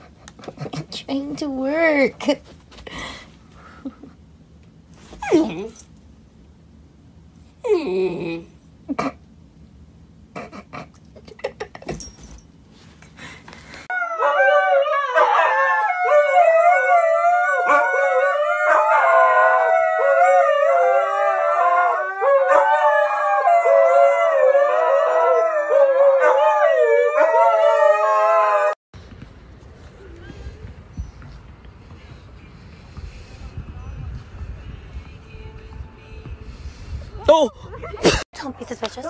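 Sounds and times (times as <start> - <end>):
dogs howling: 13.9 - 28.8.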